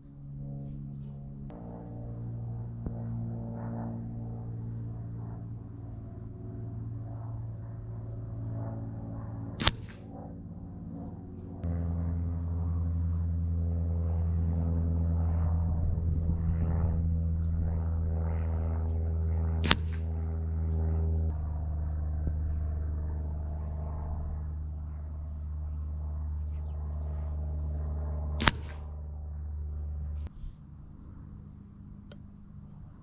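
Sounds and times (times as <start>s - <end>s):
steady low hum: 0.0s - 33.0s
pellets striking target: 9.6s - 10.1s, 19.6s - 20.1s, 28.4s - 28.9s.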